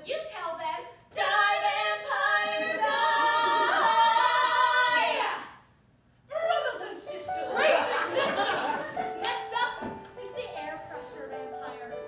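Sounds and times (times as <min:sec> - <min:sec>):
two women singing: 0:01.1 - 0:05.5.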